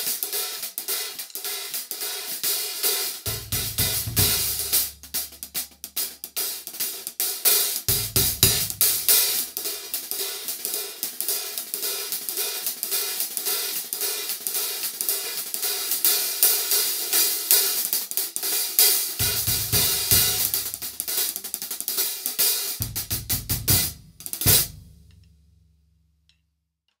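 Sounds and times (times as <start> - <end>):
hi-hats played with drumsticks: 0.0 - 25.4
deep drum hits: 7.9 - 9.2.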